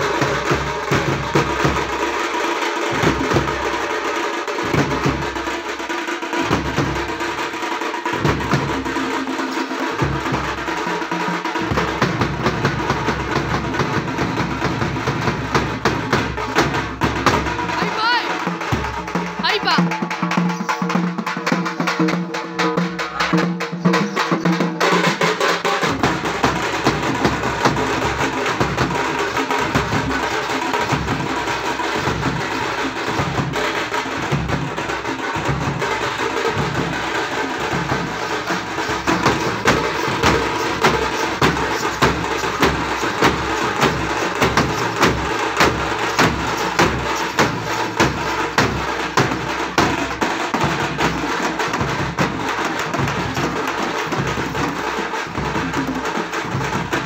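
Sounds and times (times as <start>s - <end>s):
frame drums beaten with sticks: 0.0s - 57.0s
bass drum beats: 11.5s - 55.9s.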